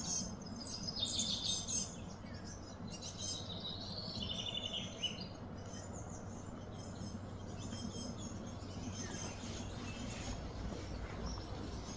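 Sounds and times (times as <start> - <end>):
birds chirping: 0.0 - 11.9
steady low background noise: 0.0 - 11.9.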